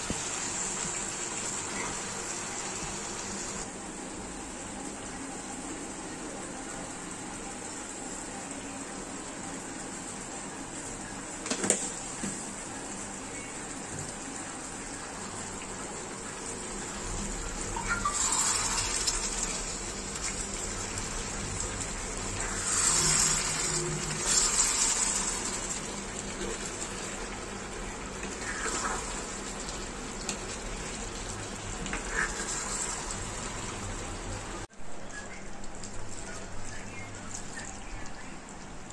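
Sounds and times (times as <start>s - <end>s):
curry simmering: 12.0s - 38.9s.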